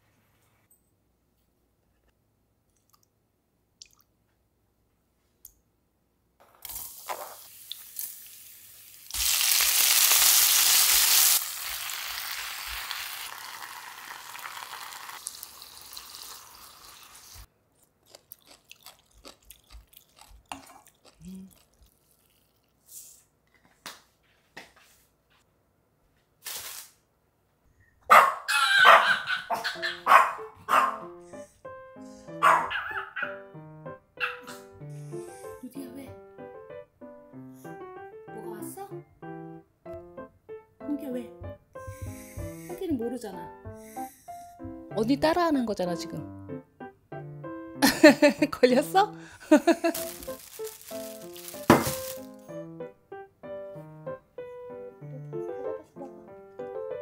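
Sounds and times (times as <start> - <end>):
food sizzling in a frying pan: 6.7 - 17.5, 49.9 - 52.3
small dog barking: 28.1 - 31.1, 32.4 - 33.4, 34.2 - 34.6
background music: 29.5 - 57.0.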